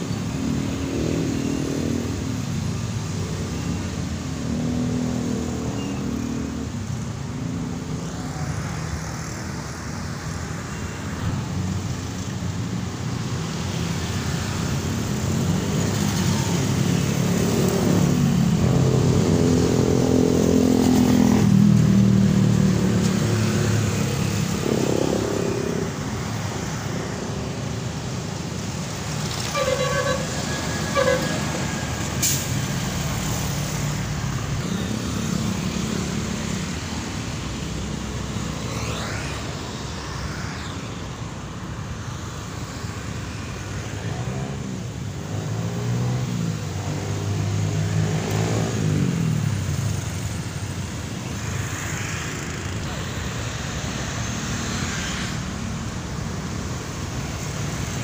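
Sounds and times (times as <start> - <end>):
bus and truck engines: 0.0 - 58.0
vehicle horn toots: 29.5 - 31.4.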